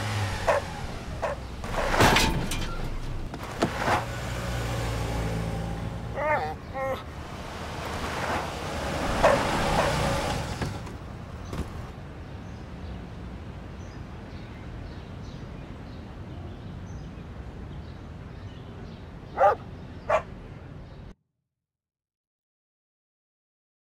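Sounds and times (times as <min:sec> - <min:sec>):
dog barking: 0:00.4 - 0:01.4, 0:09.1 - 0:10.1, 0:19.4 - 0:20.3.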